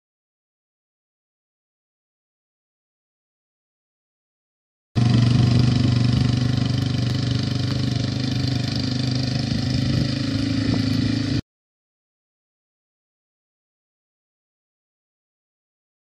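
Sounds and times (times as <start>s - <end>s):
quad bike engine running: 5.0s - 11.4s.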